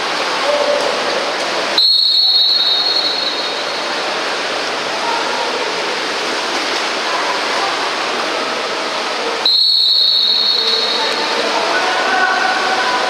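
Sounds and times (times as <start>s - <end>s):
swimmers splashing pool water: 0.0s - 13.0s.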